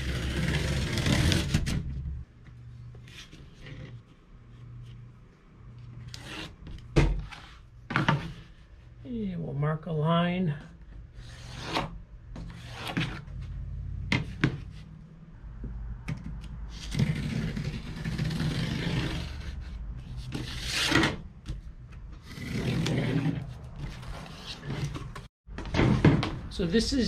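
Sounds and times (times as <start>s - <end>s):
knife cutting cardboard: 0.0s - 1.9s, 16.7s - 21.2s.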